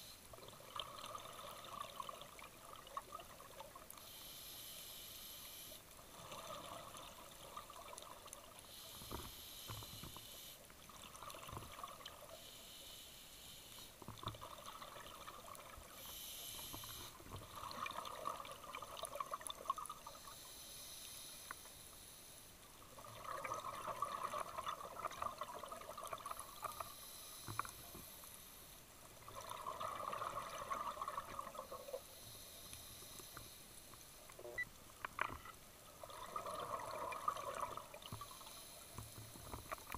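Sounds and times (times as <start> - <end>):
exhaust bubbles underwater: 0.4 - 3.9, 17.4 - 20.1, 23.0 - 26.6, 29.2 - 32.0, 35.9 - 38.3
regulator inhale hiss: 3.9 - 5.8, 8.6 - 10.7, 12.3 - 14.0, 15.9 - 17.2, 20.0 - 22.5, 26.5 - 28.8, 31.6 - 34.0, 38.0 - 39.8.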